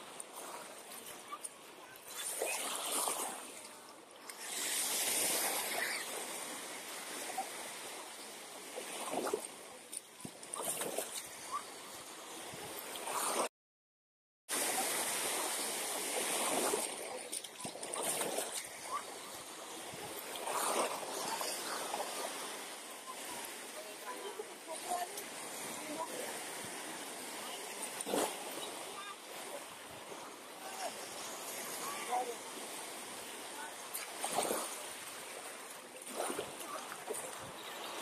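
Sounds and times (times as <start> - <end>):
surf washing onto beach: 4.3 - 9.8, 14.5 - 38.0.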